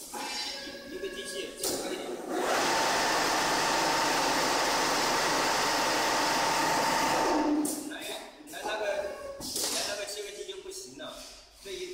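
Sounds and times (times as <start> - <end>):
sewing machine whirring: 2.2 - 7.7.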